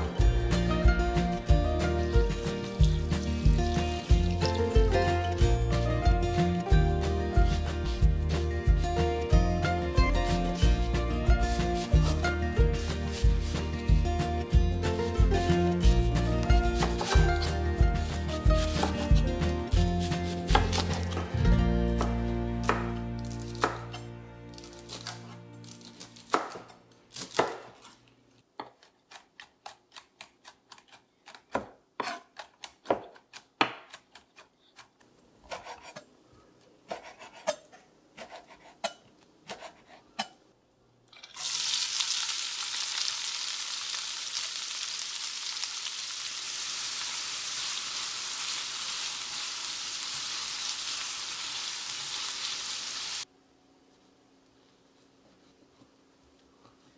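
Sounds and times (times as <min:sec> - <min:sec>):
knife chopping on wooden board: 0:18.6 - 0:19.3, 0:20.0 - 0:21.3, 0:23.5 - 0:24.0, 0:26.3 - 0:27.8, 0:28.6 - 0:34.9, 0:35.5 - 0:36.0, 0:36.9 - 0:37.6, 0:38.2 - 0:40.3
vegetables sizzling in a pan: 0:41.2 - 0:53.3.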